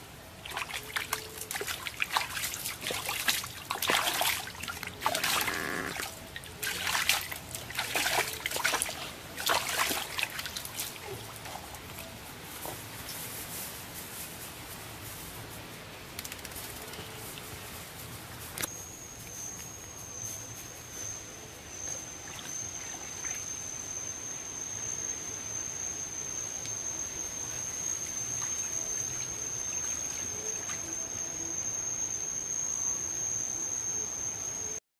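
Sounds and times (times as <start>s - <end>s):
high-pitched whine: 2.7s - 10.3s, 18.6s - 34.8s.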